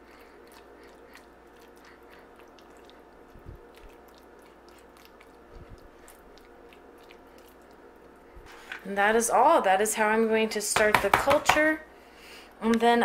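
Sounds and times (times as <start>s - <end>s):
wet squishing and sticky ticks: 0.1s - 8.2s.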